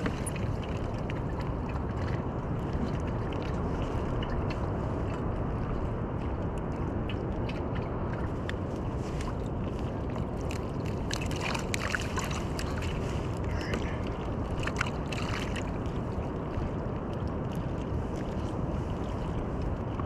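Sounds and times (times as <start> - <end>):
water rushing along hull: 0.0 - 20.0
water splashing: 0.0 - 20.0
wind on microphone: 0.0 - 20.0.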